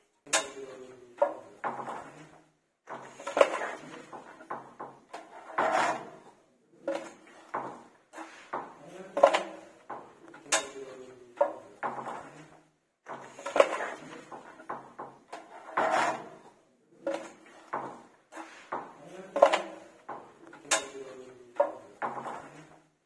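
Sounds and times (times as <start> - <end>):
putty blade scraping a wall: 1.3 - 9.8, 11.4 - 20.0.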